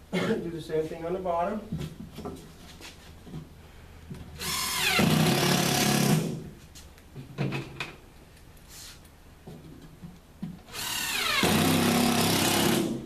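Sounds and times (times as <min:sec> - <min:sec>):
cordless drill driving screw: 0:04.4 - 0:06.2, 0:10.7 - 0:13.0.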